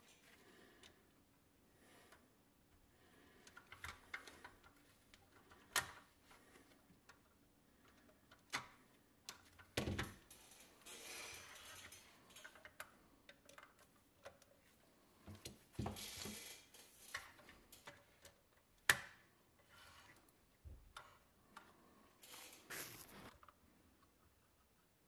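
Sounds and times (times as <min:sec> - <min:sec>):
scraping rustle: 0:22.3 - 0:23.3.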